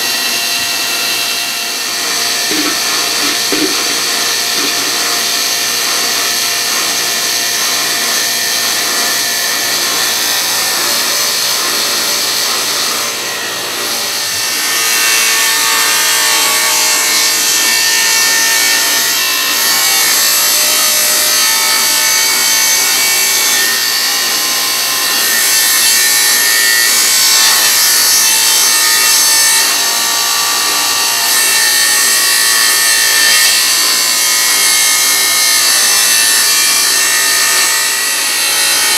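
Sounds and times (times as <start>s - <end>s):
table saw cutting wood: 0.0s - 38.9s.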